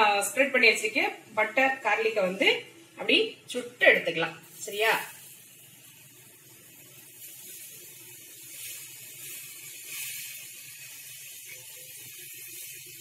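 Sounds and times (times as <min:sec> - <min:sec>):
bread sizzling on a griddle: 0:04.3 - 0:13.0.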